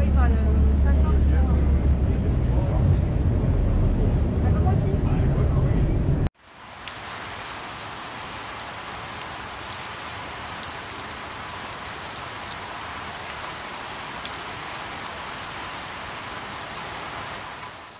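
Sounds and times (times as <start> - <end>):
raindrops ticking: 6.4 - 17.9
steady rain hiss: 6.4 - 17.9.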